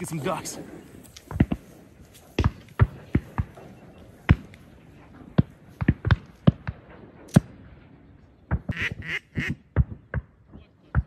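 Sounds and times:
duck quacking: 8.7s - 9.6s.

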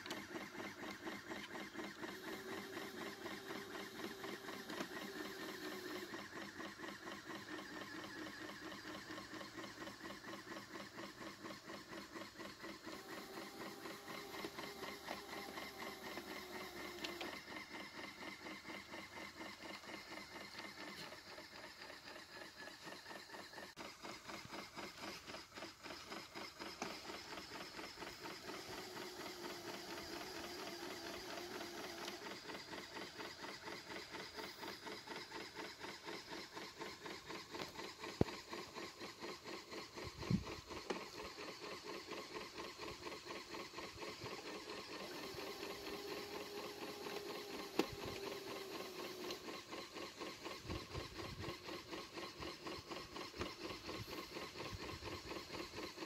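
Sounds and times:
pneumatic engine clattering: 0.0s - 56.0s.

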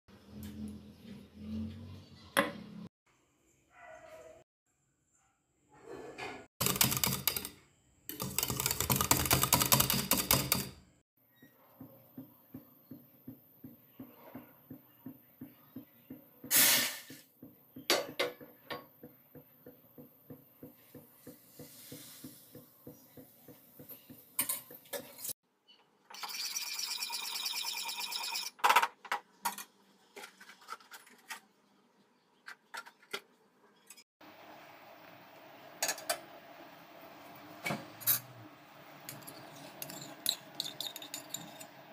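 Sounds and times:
metal pan and utensils clattering: 39.0s - 41.8s.

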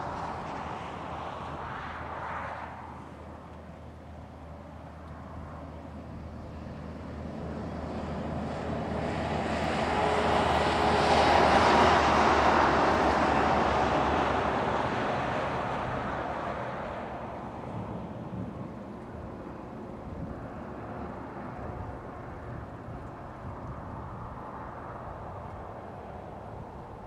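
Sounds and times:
vehicle passing by: 6.8s - 18.4s.

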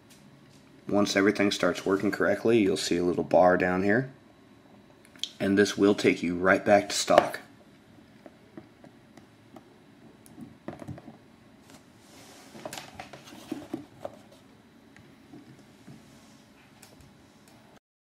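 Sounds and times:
smartphone handling knocks and rustles: 10.3s - 11.2s.

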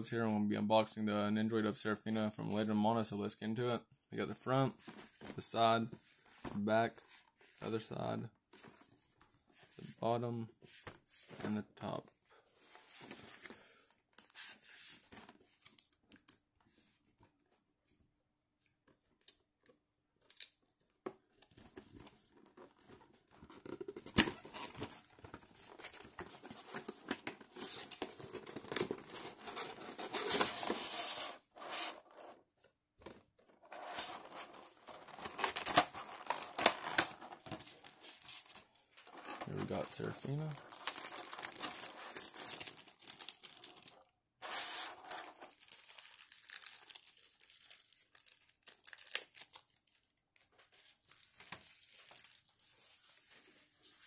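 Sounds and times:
plastic crinkling and crackling: 33.6s - 44.1s, 44.8s - 52.8s.

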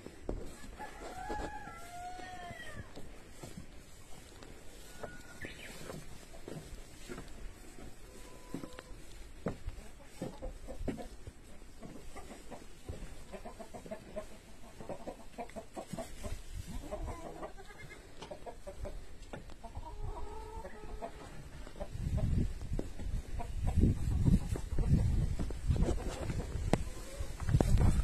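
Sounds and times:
grass rustling and clicks: 0.0s - 19.7s, 21.0s - 28.0s
goat kids calling: 16.7s - 18.3s.

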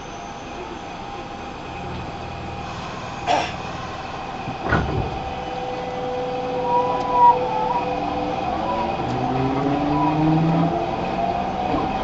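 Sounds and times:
train electrical hum and whine: 0.0s - 12.0s.

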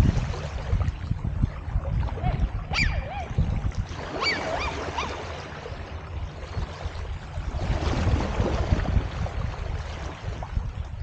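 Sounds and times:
steady low rumble: 0.0s - 11.0s
dog barking and yelping: 2.7s - 3.3s, 4.2s - 5.2s.

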